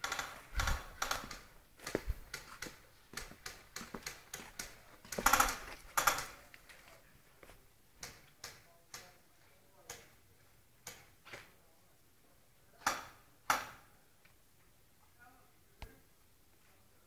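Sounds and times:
scuffing: 1.2 - 7.6.

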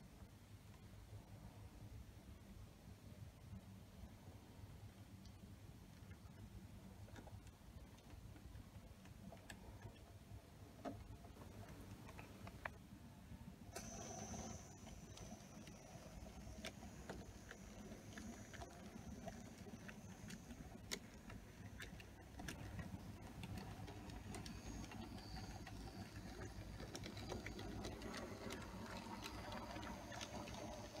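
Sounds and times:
small motor rumble: 13.7 - 31.0
wheels clicking on rails: 13.8 - 31.0.

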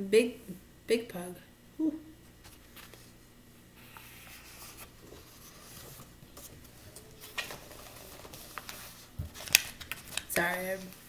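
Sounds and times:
paper pages rustling: 2.3 - 3.2, 3.8 - 11.0
paper handling ticks: 3.9 - 11.0.

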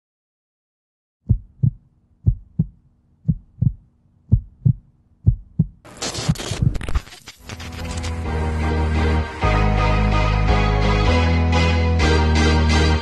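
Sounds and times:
heartbeat thumps: 1.2 - 5.8.

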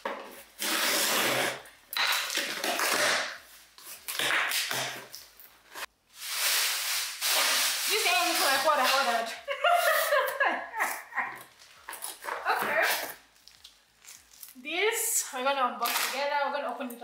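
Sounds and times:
packing tape ripping off cardboard: 0.2 - 10.4, 11.8 - 14.6.

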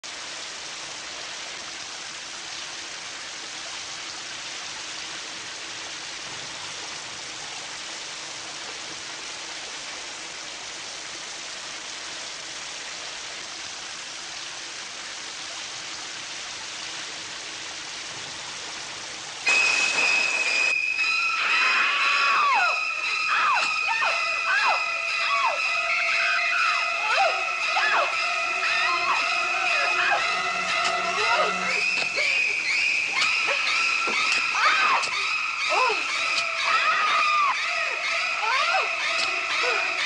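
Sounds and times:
loud high-pitched shrieking: 19.5 - 40.0.

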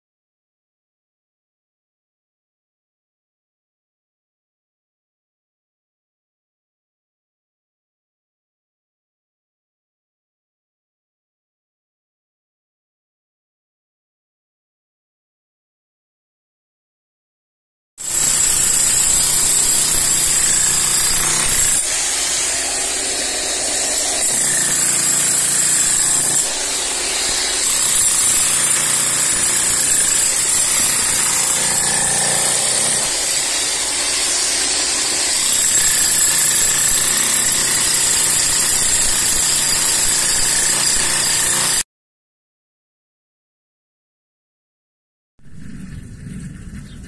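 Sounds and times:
demolition hammer breaking concrete: 18.0 - 41.8.

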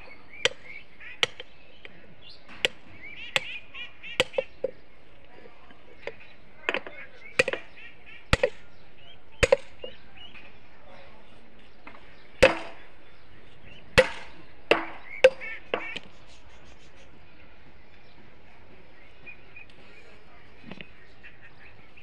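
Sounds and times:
hammer clanking on steel clips: 0.4 - 3.6, 4.2 - 4.8, 6.0 - 8.6, 9.4 - 10.5, 11.8 - 13.0, 13.7 - 16.1.

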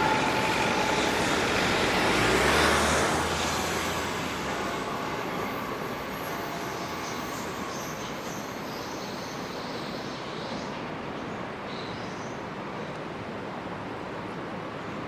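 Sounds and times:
faint high wheel squeal: 0.0 - 10.2
electric train rolling on track: 0.0 - 11.6.

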